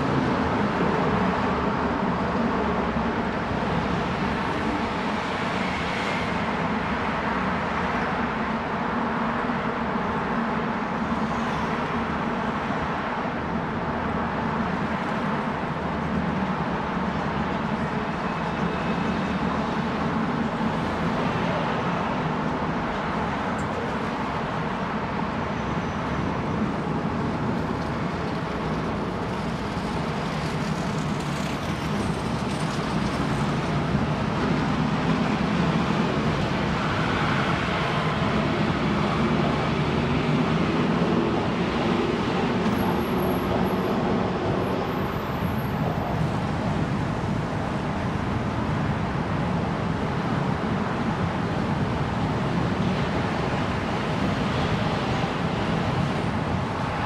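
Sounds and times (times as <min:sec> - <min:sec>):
car and bus engines: 0:00.0 - 0:57.0.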